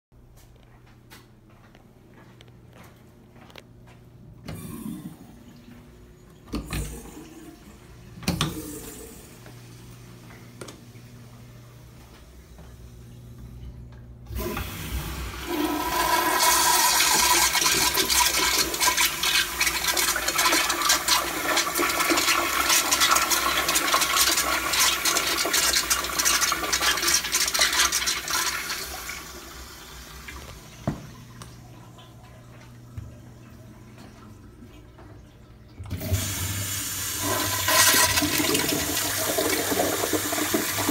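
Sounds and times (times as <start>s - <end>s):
steady low hum: 0.2s - 16.0s
footsteps: 0.3s - 4.1s
toilet flushing: 4.4s - 13.5s, 14.2s - 40.9s.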